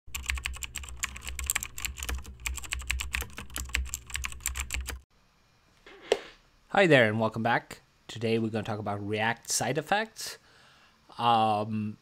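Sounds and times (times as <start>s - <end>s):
fast keyboard typing: 0.1s - 5.0s.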